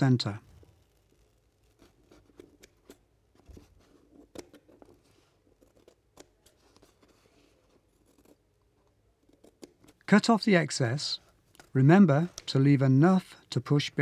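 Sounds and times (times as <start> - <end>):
scissors cutting wallpaper: 0.8 - 10.0.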